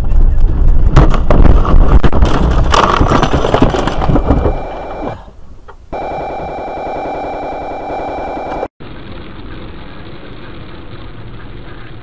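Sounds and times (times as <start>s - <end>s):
vehicle rumble with clattering knocks: 0.0s - 4.6s, 8.8s - 12.0s.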